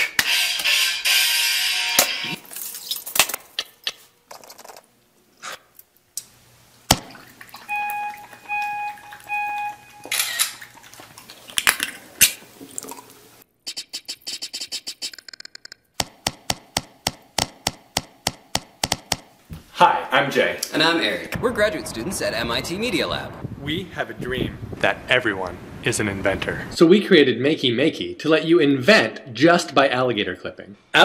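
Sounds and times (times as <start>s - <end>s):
short countdown beeps: 7.7s - 10.1s.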